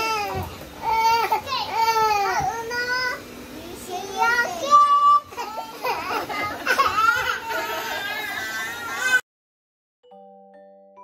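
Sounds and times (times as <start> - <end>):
baby crying: 5.0 - 9.2.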